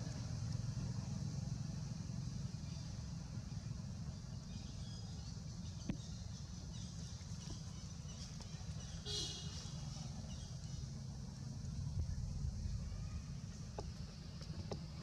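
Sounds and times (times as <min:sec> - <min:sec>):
low outdoor rumble: 0:00.0 - 0:15.0.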